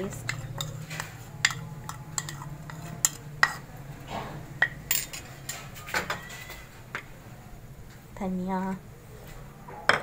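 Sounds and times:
kitchenware clinking and scraping: 0.0 - 7.1, 9.3 - 10.0.

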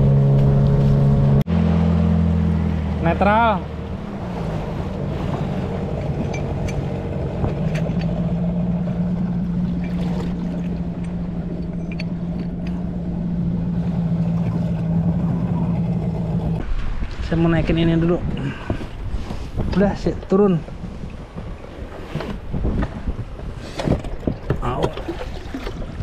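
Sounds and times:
outboard motor idling: 1.5 - 16.6.

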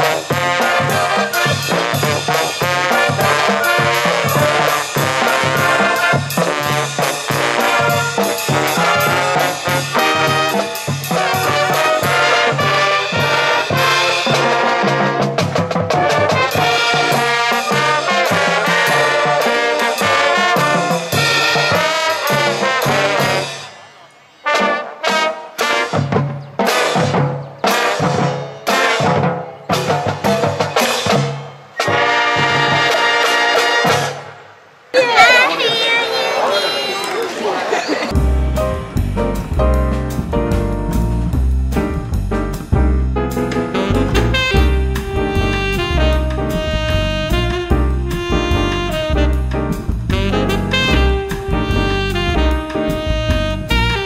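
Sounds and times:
steady drum beat: 0.0 - 23.5, 38.1 - 54.0
marching band playing: 0.0 - 54.0.

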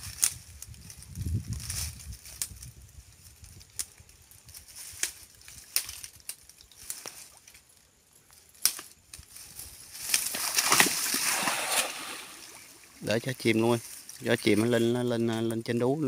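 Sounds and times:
cast net clicks and rustles: 0.0 - 7.7, 8.4 - 13.0
footsteps in wet grass: 0.0 - 15.6.

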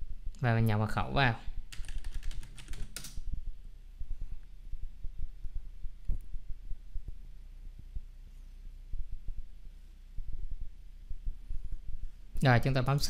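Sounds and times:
keyboard keys tapping: 1.7 - 3.2
soft low thumps: 3.2 - 12.4
low hum: 3.2 - 12.9.

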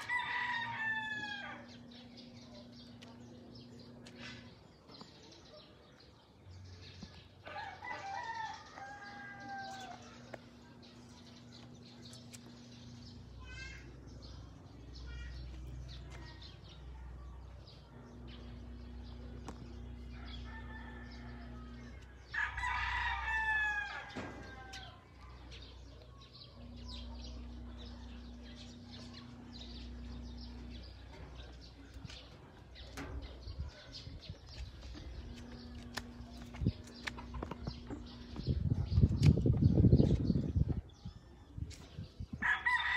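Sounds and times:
rooster crowing: 0.0 - 1.7, 7.5 - 10.0, 20.2 - 25.0, 42.4 - 42.9
low steady hum: 0.0 - 42.9.

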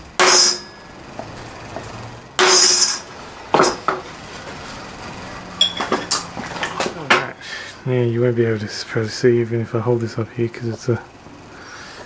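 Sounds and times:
hammer striking centre punch: 0.2 - 0.8, 2.4 - 4.0
sharp knocks: 0.2 - 4.1.

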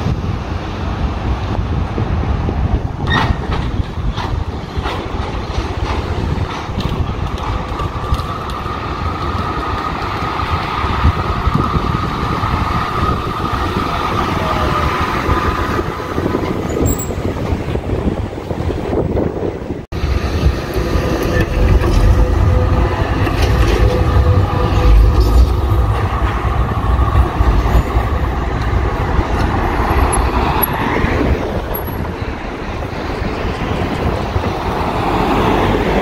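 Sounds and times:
tram running on rails: 0.0 - 36.0
low rumble: 19.8 - 35.2.

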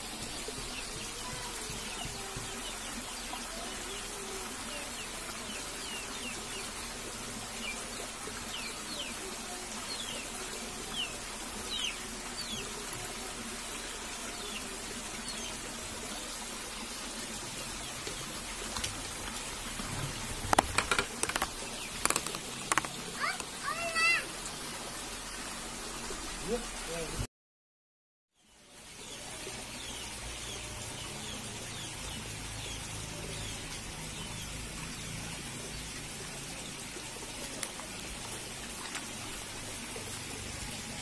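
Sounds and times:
stream rushing over rocks: 0.0 - 27.3, 28.8 - 41.0
sharp knocks: 20.4 - 22.9.

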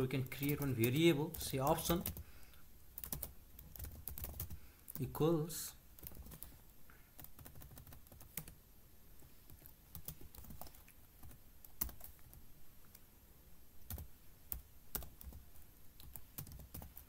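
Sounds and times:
typing on computer keyboard: 3.0 - 4.6, 6.0 - 6.6, 7.2 - 8.6, 9.6 - 12.4, 13.9 - 15.4, 16.0 - 17.0.

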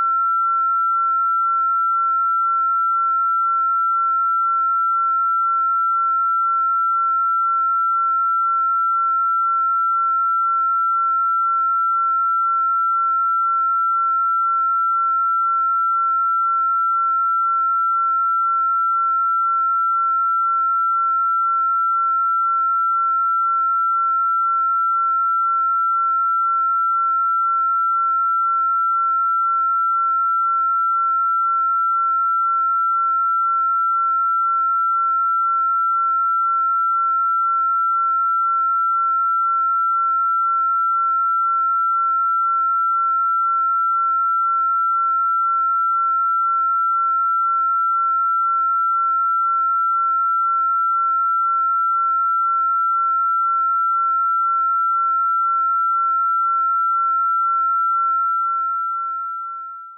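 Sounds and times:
pure sine-wave tone: 0.0 - 59.9.

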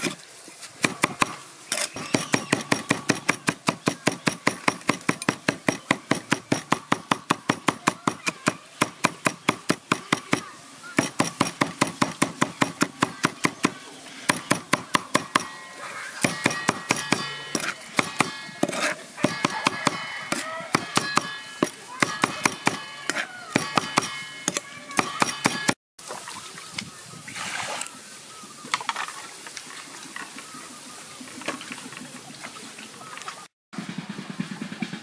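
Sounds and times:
cleaver chopping on wooden board: 0.8 - 15.6, 16.2 - 25.8.

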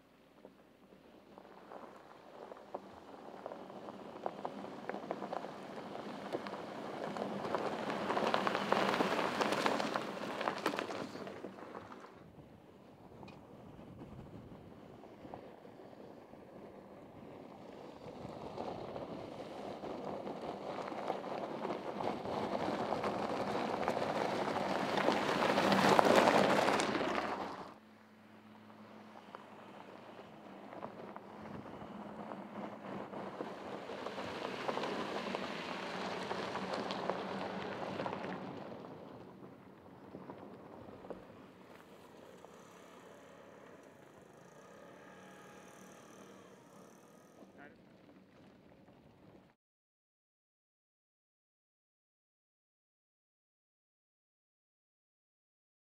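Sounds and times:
tyres crunching on gravel: 0.4 - 12.2, 17.4 - 27.8, 29.1 - 49.5
distant car engine drone: 12.8 - 49.5.

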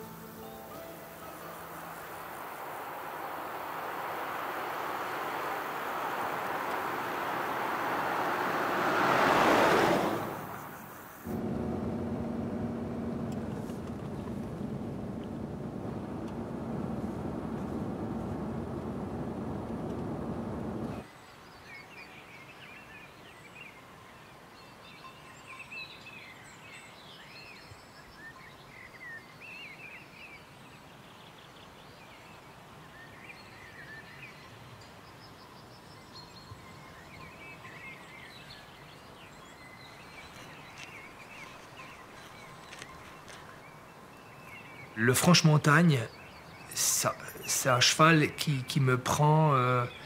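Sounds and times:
birds chirping: 0.0 - 21.1, 35.4 - 50.0
car road noise inside cabin: 2.6 - 21.0.

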